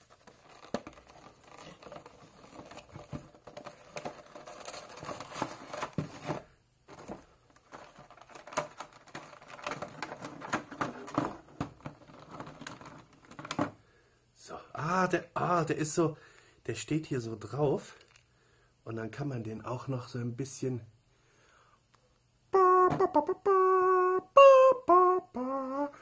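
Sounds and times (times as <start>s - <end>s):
plastic and card crinkling: 0.0s - 13.7s.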